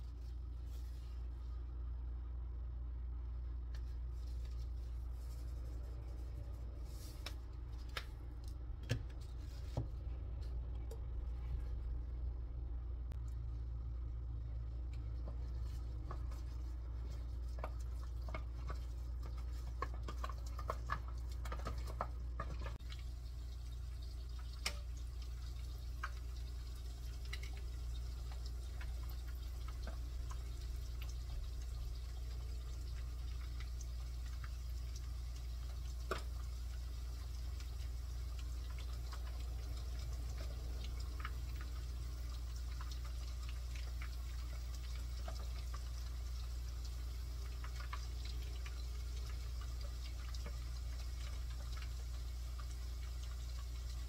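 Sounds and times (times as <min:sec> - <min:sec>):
low hum: 0:00.0 - 0:19.9
chicken frying in hot oil: 0:13.0 - 0:54.0.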